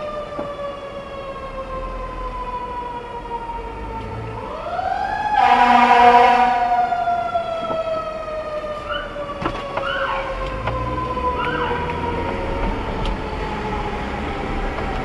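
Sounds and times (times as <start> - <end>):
siren wailing: 0.0 - 15.0
short siren chirps: 4.4 - 8.1
loud horn blast: 5.3 - 7.0.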